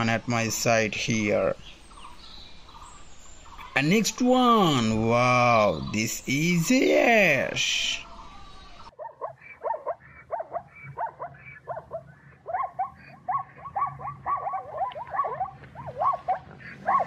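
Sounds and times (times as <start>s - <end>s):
zebras barking: 8.9s - 17.0s.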